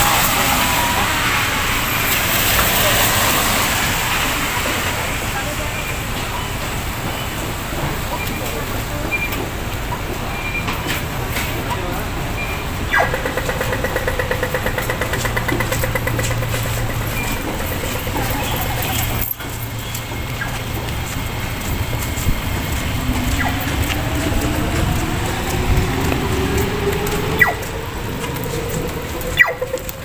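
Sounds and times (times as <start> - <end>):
crossing signal rapid ticking: 0.0 - 30.0
low hum of traffic: 0.0 - 30.0
crossing signal falling tone: 15.4 - 30.0.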